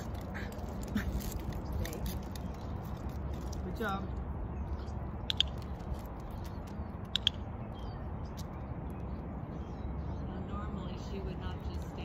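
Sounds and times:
leash clips clinking: 4.8 - 8.5.

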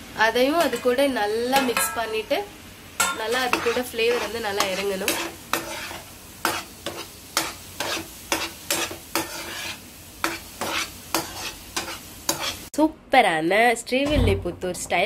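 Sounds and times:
faint sizzle: 0.0 - 15.0
spatula scraping a frying pan: 0.6 - 2.2, 3.0 - 12.7.

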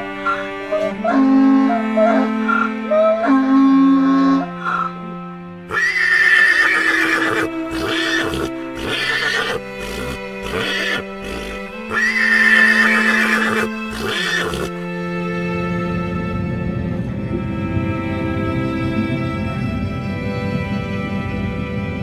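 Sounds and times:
background music held tones: 0.0 - 22.0
donkey braying: 5.7 - 14.8.

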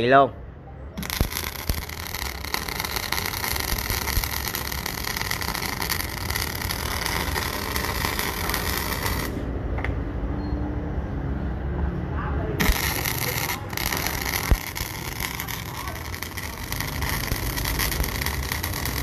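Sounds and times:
welding arc crackle and hiss: 1.0 - 9.5, 12.6 - 19.0.

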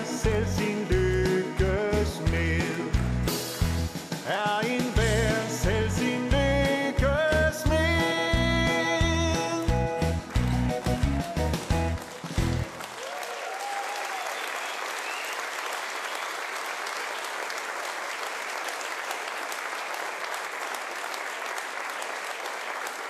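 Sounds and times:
audience applauding: 9.4 - 23.0.

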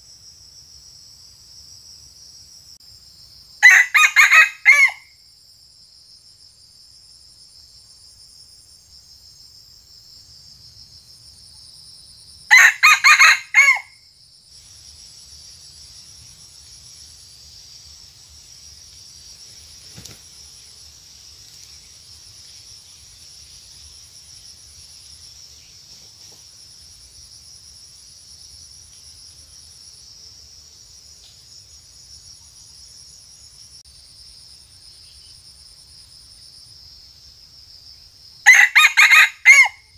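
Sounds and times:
high insect drone: 0.0 - 39.9
rooster crowing: 3.6 - 5.1, 12.5 - 14.0, 38.5 - 39.9.

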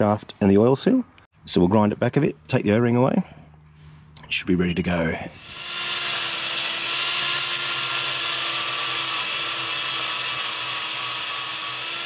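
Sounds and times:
angle grinder grinding metal: 5.4 - 12.0.

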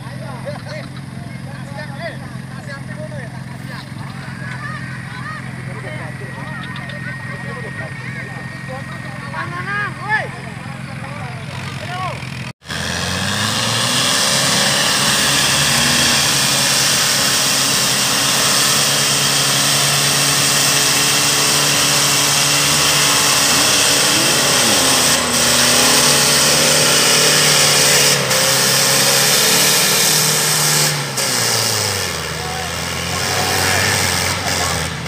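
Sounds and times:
buggy engine revving hard: 7.3 - 35.0.

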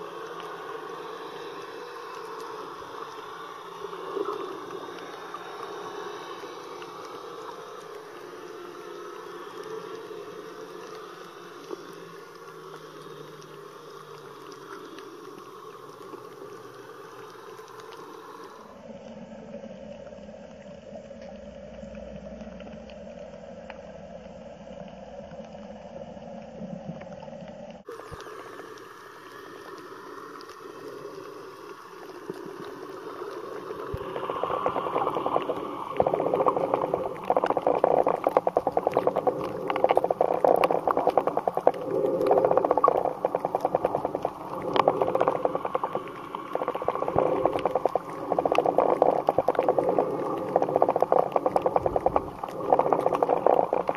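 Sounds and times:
underwater water wash: 0.0 - 53.9
rapid crackling: 33.4 - 53.9.

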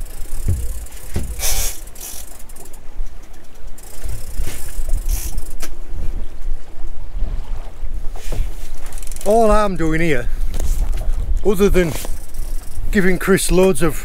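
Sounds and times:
fishing reel ratcheting and clicking: 0.0 - 5.7, 8.8 - 9.5, 12.0 - 13.7.

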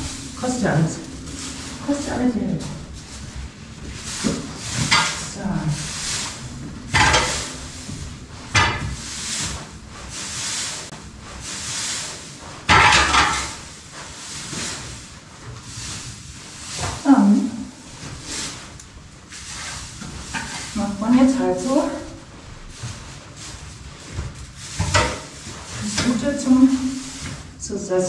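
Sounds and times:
pitchfork swishing through straw: 0.0 - 27.7.

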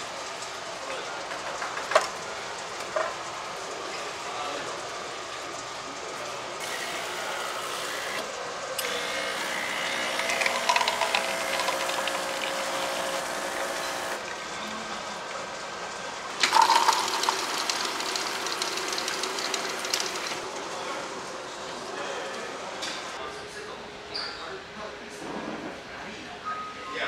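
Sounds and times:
vending machine whirring: 0.0 - 23.2
drink dispenser pouring hiss: 6.6 - 8.2, 8.8 - 14.2, 16.4 - 20.4.

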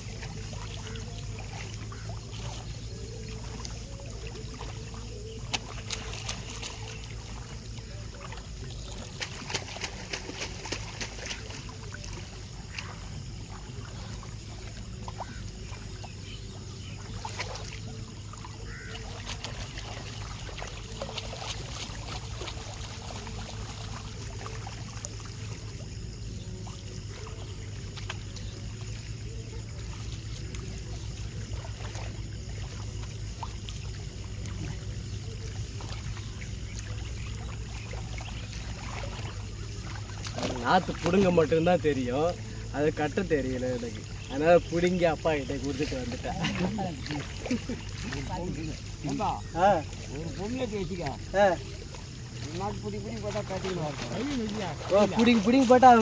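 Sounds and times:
muddy water sloshing and splashing: 0.0 - 56.0.

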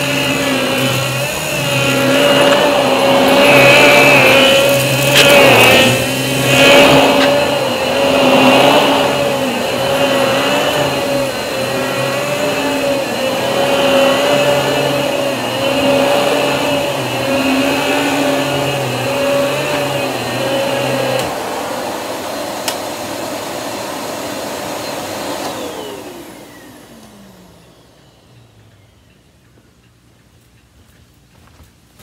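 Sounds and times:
vacuum click: 0.0 - 23.7
vacuum motor winding down: 0.0 - 29.3
vacuum cleaner on carpet: 0.0 - 29.4.

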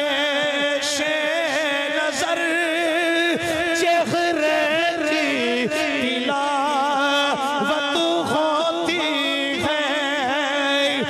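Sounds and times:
man chanting a devotional song: 0.0 - 11.0.

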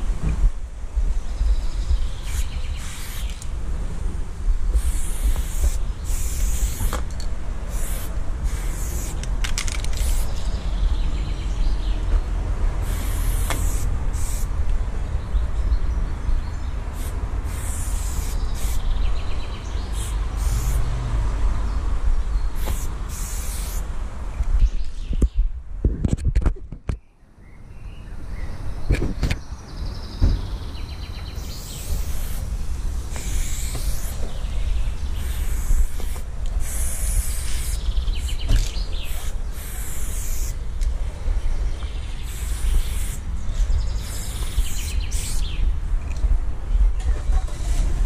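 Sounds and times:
spray paint can hissing: 2.2 - 3.5, 4.7 - 10.4, 12.8 - 14.5, 16.9 - 19.3, 19.9 - 20.8, 22.6 - 23.9, 31.4 - 34.5, 35.1 - 40.6, 42.2 - 43.2, 43.9 - 45.6.

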